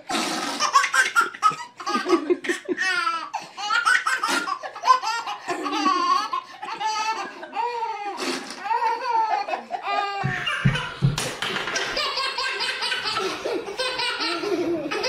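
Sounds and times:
baby laughing: 0:00.4 - 0:15.0.

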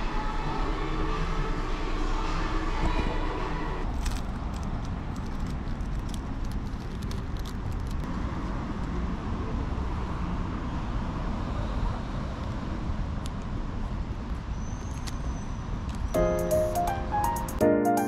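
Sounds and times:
road traffic rumble: 0:00.0 - 0:17.6
plastic bag crinkling: 0:03.9 - 0:08.0.

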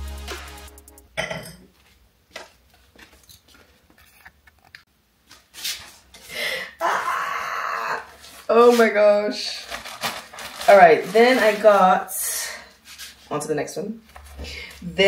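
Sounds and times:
background music: 0:00.0 - 0:01.2
plastic bag rustling: 0:08.2 - 0:12.2.

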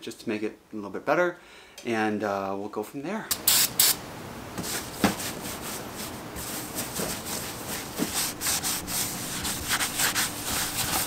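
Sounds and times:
paper towel rubbing on metal: 0:05.1 - 0:11.0.

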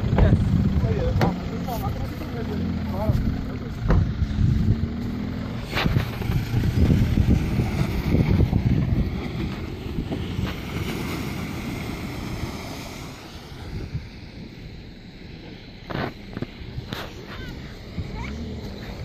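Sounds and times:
driving through mud and water: 0:00.0 - 0:19.0
pickup diesel engine driving: 0:00.0 - 0:19.0
wind buffeting microphone: 0:03.8 - 0:19.0.

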